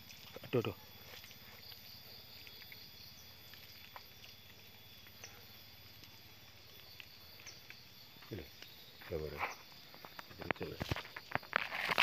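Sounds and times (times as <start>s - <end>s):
insects chirring: 0.0s - 12.0s
footsteps on dry leaves: 10.4s - 12.0s.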